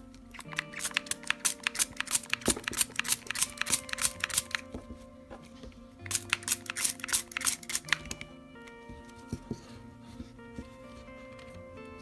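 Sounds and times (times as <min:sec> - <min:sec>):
spray bottle misting water: 0:06.1 - 0:08.0.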